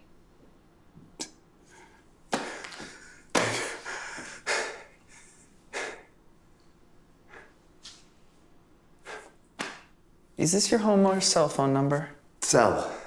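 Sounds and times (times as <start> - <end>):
man gasping breaths: 1.6 - 6.1.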